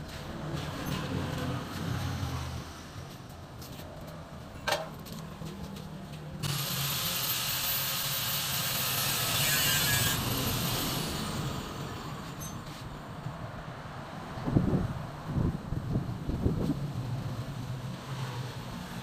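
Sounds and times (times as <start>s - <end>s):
power tool whining: 6.4s - 12.4s.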